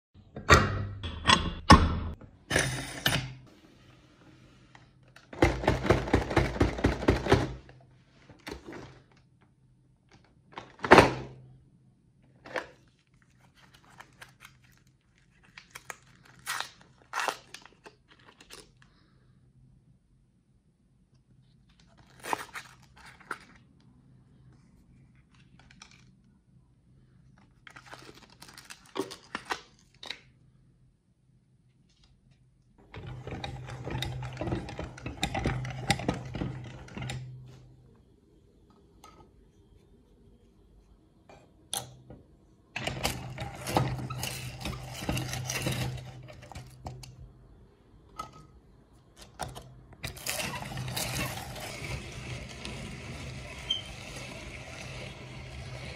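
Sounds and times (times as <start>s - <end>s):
foil wrappers crinkling: 13.0s - 18.9s, 27.7s - 30.0s
meat grinder running: 50.1s - 55.9s.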